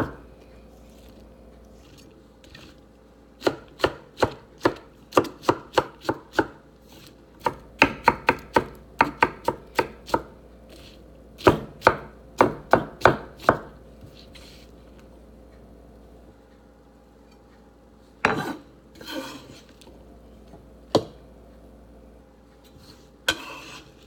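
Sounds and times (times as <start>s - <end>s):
knife chopping on wooden board: 3.4s - 6.6s, 7.4s - 13.8s, 20.9s - 21.2s.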